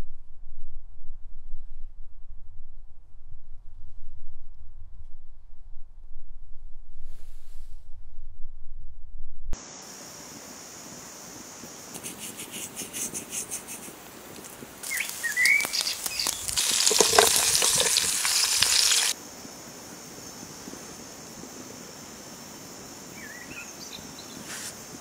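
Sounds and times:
low rumble: 0:00.0 - 0:09.6
food sizzling in a pan: 0:14.4 - 0:19.2
bird chirping: 0:14.8 - 0:17.4.

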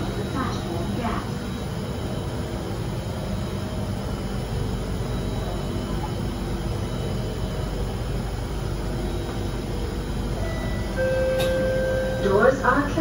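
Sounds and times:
metro train low rumble: 0:00.0 - 0:13.0
steady tone: 0:09.5 - 0:13.0.

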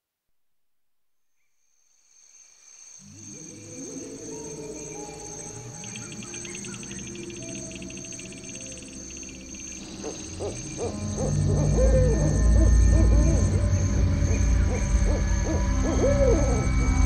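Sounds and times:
crickets chirring: 0:01.4 - 0:17.0
low music drone: 0:03.1 - 0:17.0
fast pulsing chirp: 0:04.1 - 0:17.0.

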